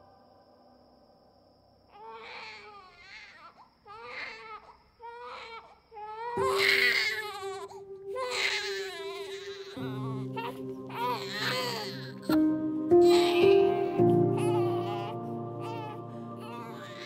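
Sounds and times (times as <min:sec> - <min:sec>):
newborn baby crying: 0:01.9 - 0:17.0.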